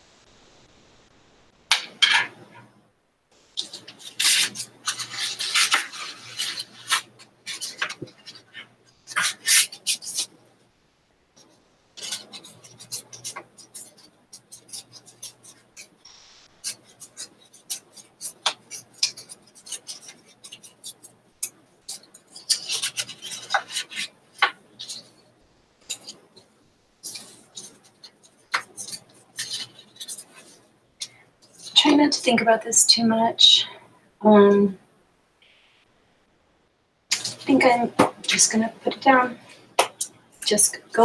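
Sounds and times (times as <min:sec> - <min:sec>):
paper rustling and crinkling: 0:03.6 - 0:10.4, 0:12.0 - 0:16.0, 0:21.9 - 0:25.2, 0:27.0 - 0:30.6.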